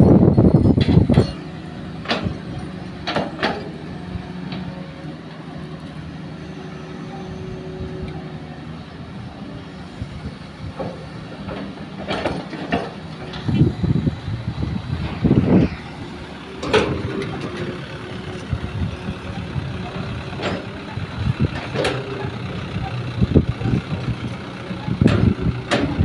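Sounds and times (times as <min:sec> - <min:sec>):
excavator diesel engine running: 0:00.0 - 0:26.0
sharp metal clanks: 0:00.3 - 0:03.7.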